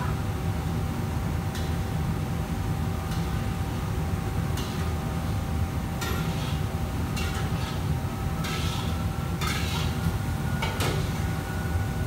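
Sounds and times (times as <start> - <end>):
wok sizzling and scraping: 6.1 - 6.6, 7.2 - 10.0.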